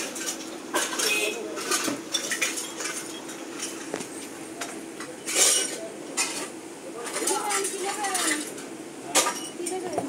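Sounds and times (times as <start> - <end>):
crockery clicks and knocks: 4.6 - 10.0.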